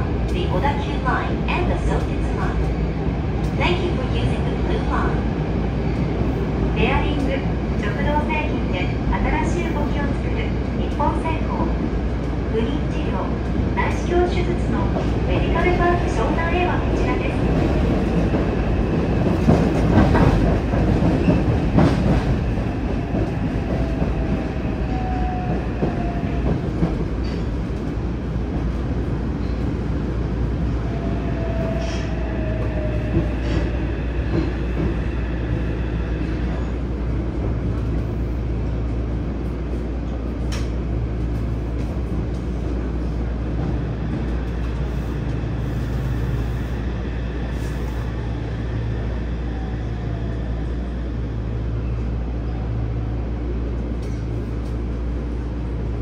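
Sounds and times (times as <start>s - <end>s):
train wheels rumbling on rails: 0.0s - 56.0s
rail clicks: 40.0s - 42.9s.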